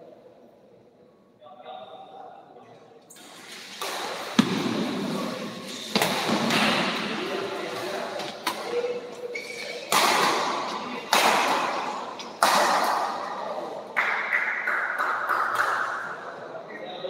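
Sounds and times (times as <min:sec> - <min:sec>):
racket hitting shuttlecock: 0:03.8 - 0:13.6.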